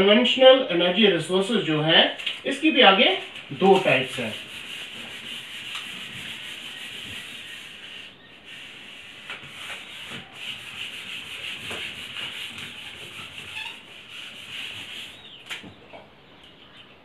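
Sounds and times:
whiteboard being wiped: 0:02.1 - 0:15.2.

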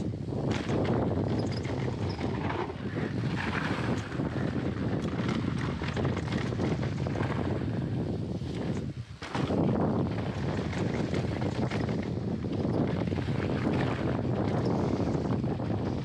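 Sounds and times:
wind buffeting microphone: 0:00.0 - 0:16.0
bike clicks and knocks: 0:00.4 - 0:02.7, 0:08.6 - 0:09.7.

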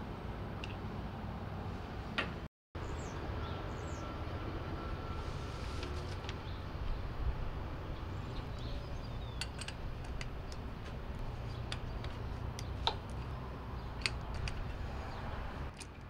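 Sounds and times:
steady low rumble: 0:02.8 - 0:15.8
metallic tool clicks and taps: 0:14.0 - 0:14.7.

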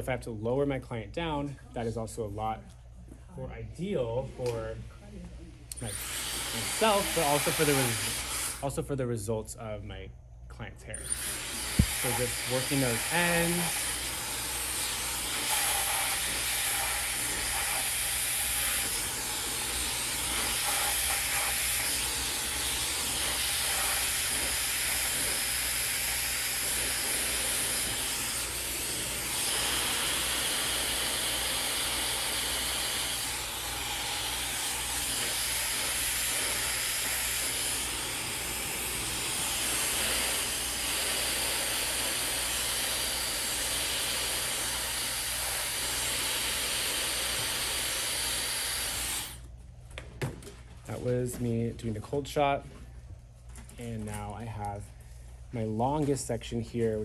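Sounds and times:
hair dryer blowing: 0:05.7 - 0:08.6, 0:11.0 - 0:49.4.

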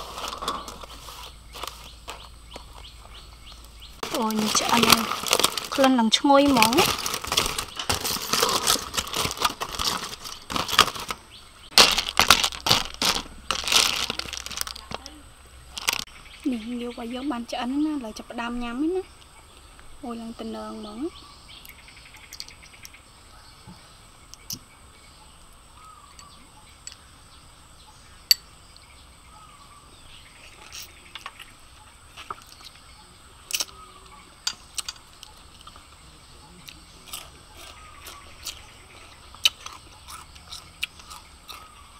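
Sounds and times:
aluminium foil crinkling: 0:00.0 - 0:02.9, 0:04.0 - 0:16.1
utensil scraping: 0:00.0 - 0:03.0, 0:04.0 - 0:15.0
faint bird chirps: 0:14.8 - 0:41.9.

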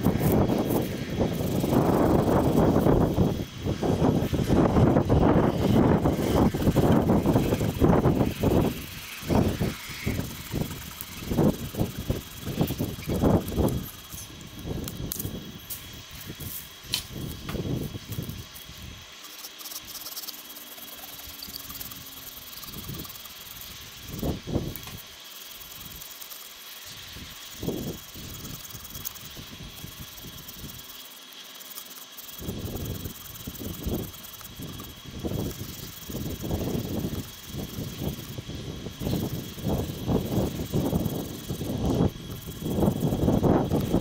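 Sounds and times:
wind buffeting microphone: 0:00.0 - 0:19.0, 0:32.4 - 0:44.0
steady hiss: 0:00.0 - 0:44.0.

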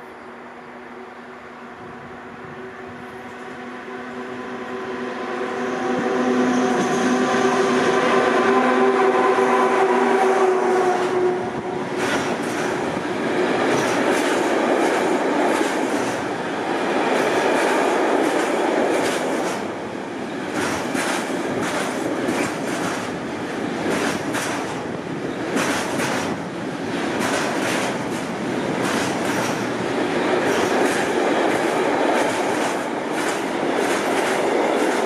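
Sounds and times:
electric locomotive hum: 0:00.0 - 0:35.0
train wheels rumbling on rails: 0:01.8 - 0:35.0
wheels clacking over rail joints: 0:11.9 - 0:16.4, 0:17.0 - 0:19.7, 0:20.4 - 0:35.0.

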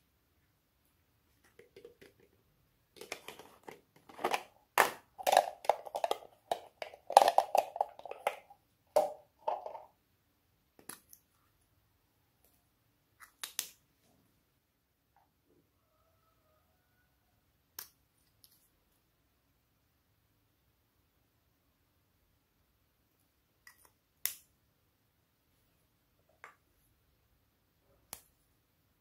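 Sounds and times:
plastic parts rattling and clicking: 0:03.0 - 0:09.9.

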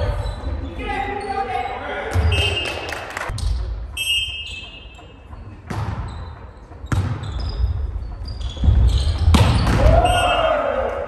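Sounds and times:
sneakers squeaking on court: 0:00.0 - 0:02.6, 0:04.3 - 0:09.8
volleyball hits: 0:09.2 - 0:10.2.

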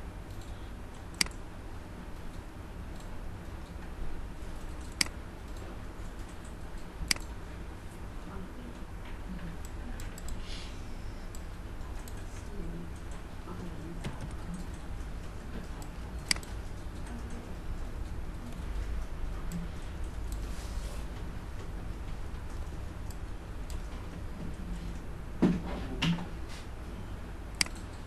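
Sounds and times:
computer mouse clicks: 0:00.3 - 0:01.4, 0:02.1 - 0:03.9, 0:04.6 - 0:07.4, 0:09.6 - 0:10.4, 0:11.3 - 0:20.5, 0:27.5 - 0:28.0
keyboard keystrokes: 0:00.3 - 0:01.4, 0:04.6 - 0:07.3, 0:27.6 - 0:28.0.

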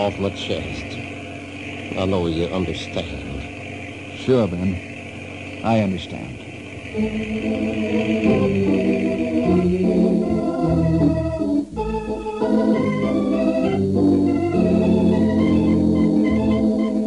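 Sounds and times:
organ chords: 0:00.0 - 0:17.0.

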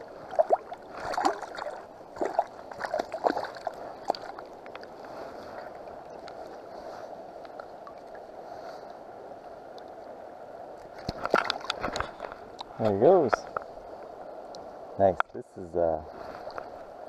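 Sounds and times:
fish splashing in water: 0:00.0 - 0:04.6
river water rushing: 0:00.0 - 0:12.6.

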